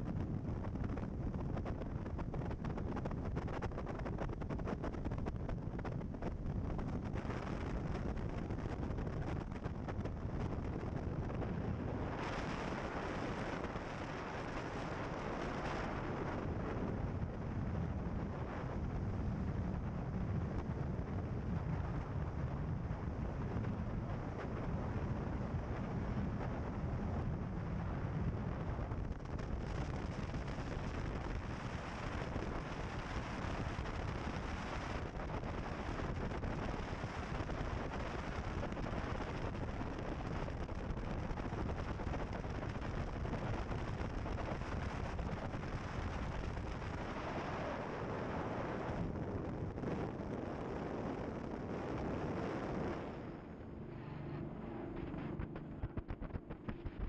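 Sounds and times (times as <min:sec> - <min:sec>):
wind buffeting microphone: 0:00.0 - 0:57.0
boat engine roar: 0:52.2 - 0:57.0.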